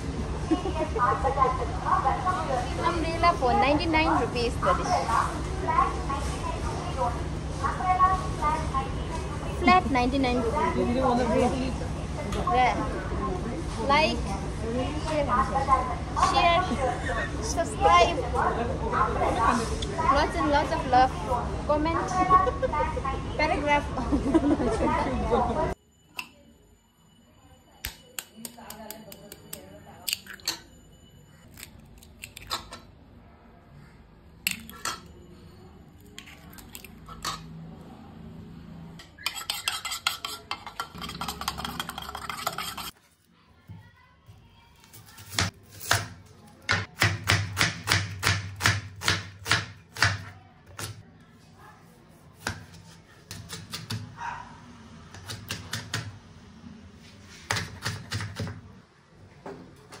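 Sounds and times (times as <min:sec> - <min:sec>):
fast clinking in bowl: 0:39.1 - 0:43.0.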